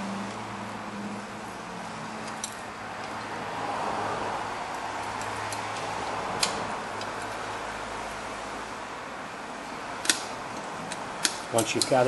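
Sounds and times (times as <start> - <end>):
steady background hum: 0.0 - 12.0
metallic clicks of pliers: 10.9 - 12.0.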